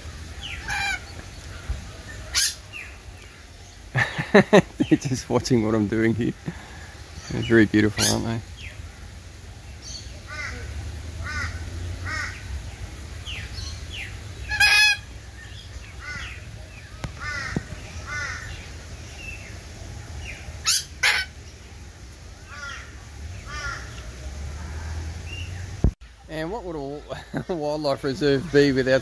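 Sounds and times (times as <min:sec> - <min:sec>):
harsh parrot calls: 0:00.4 - 0:01.1, 0:02.3 - 0:02.9, 0:07.2 - 0:08.4, 0:09.8 - 0:12.5, 0:14.0 - 0:16.4, 0:20.2 - 0:21.4.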